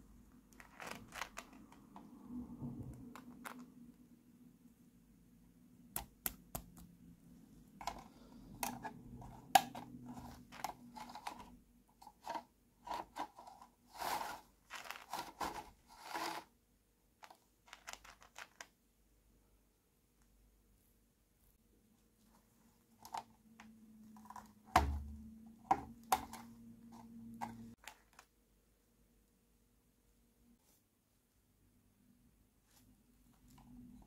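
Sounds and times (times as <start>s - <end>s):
plastic parts scraping: 0.5s - 2.1s, 7.8s - 16.5s, 17.2s - 18.7s.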